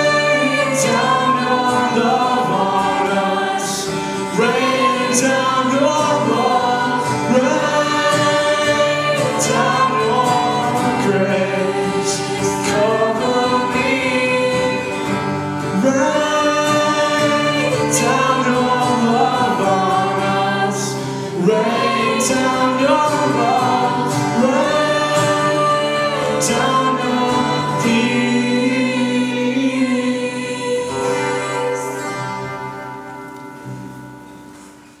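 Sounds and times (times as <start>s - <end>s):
group singing worship song: 0.0s - 33.2s.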